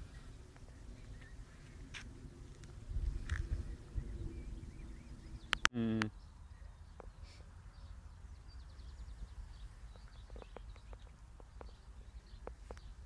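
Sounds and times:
wind rumble on microphone: 0.0 - 5.7
bird chirps: 3.5 - 13.0.

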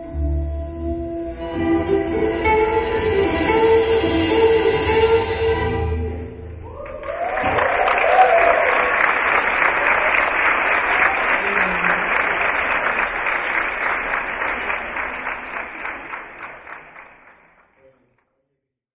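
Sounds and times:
audience applauding: 6.6 - 18.2.

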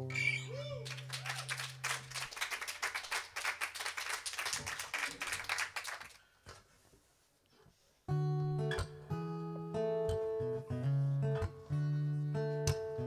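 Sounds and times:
audience applauding: 0.6 - 6.2.

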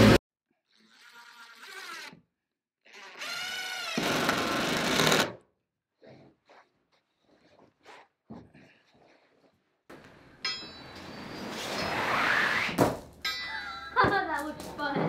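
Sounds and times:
impact driver driving screws: 3.2 - 5.4.

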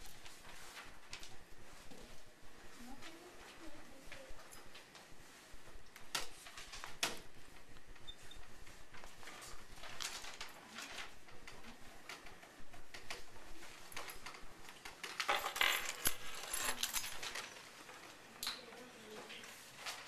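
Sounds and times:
paper sheets rustling: 0.0 - 14.4, 15.0 - 18.2, 19.0 - 20.0
small clicks and clatter: 8.9 - 20.0.

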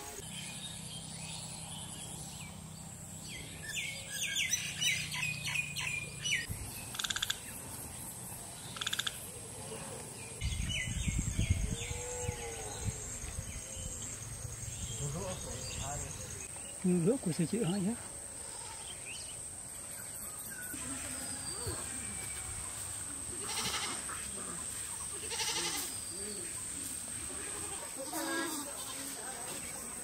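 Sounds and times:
birds chirping and trilling: 0.1 - 22.9
high insect whine: 10.0 - 29.9.

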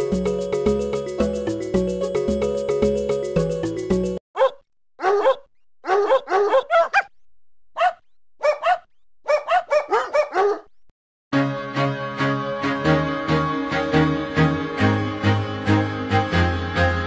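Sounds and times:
small dog yapping: 4.4 - 7.1, 7.8 - 10.6.

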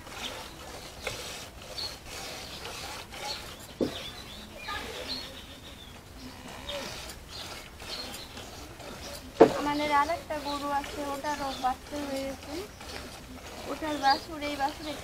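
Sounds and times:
milk squirting into pail: 6.3 - 15.0.

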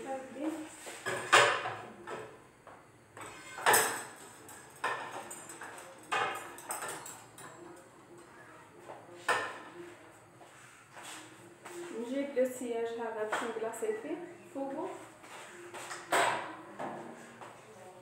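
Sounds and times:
metal and dishes clattering: 1.0 - 2.3, 3.2 - 8.4.

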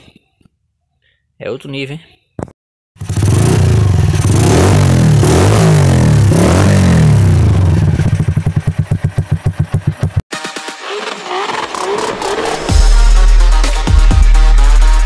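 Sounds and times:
motorcycle engine idling: 3.0 - 5.0, 6.9 - 10.2
motorcycle engine revving: 3.0 - 13.0.

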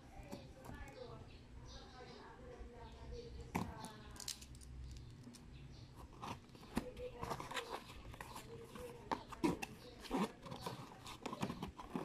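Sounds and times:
plastic packaging clicks and scrapes: 6.0 - 12.0.

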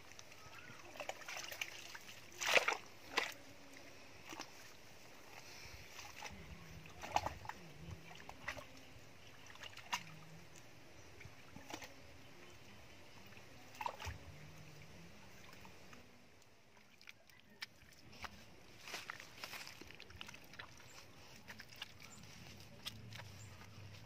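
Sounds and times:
spade squelching into wet mud: 1.0 - 3.4.

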